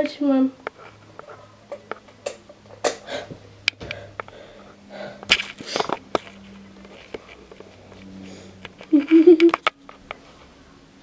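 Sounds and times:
faint steady hum: 0.0s - 11.0s
person breathing and sniffing: 3.9s - 6.0s, 8.1s - 8.6s.

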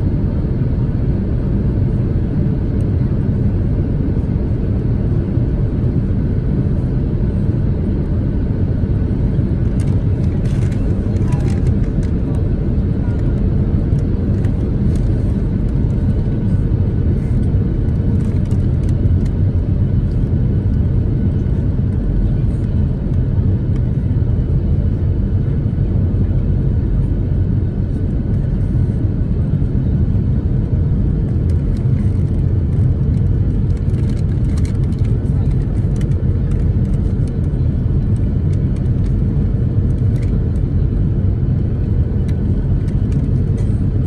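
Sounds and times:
jet engines rumbling: 0.0s - 44.0s.

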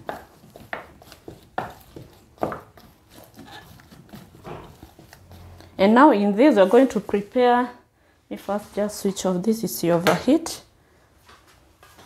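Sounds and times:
spoon mashing potatoes in bowl: 0.0s - 7.5s.

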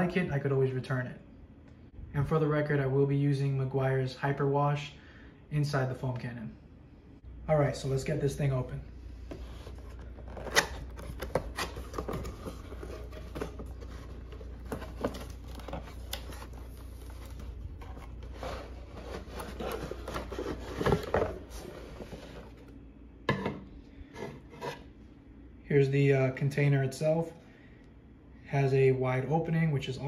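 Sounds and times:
cardboard flaps scraping open: 9.3s - 22.6s.

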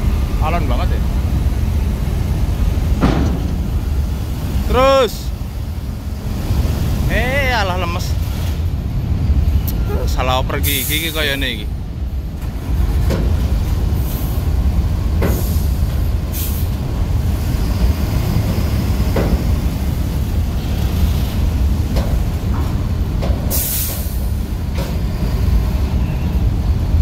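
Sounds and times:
bus diesel engine labouring: 0.0s - 27.0s
air brake hisses: 10.6s - 11.2s, 15.3s - 16.8s, 23.5s - 24.4s.

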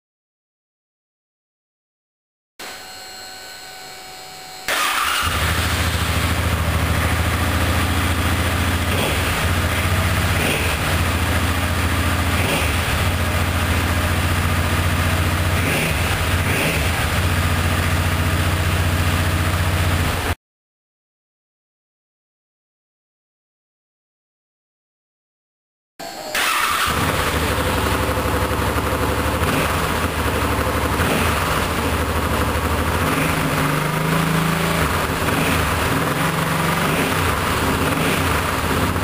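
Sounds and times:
motorcycle engine idling: 4.8s - 20.3s, 26.4s - 39.0s.

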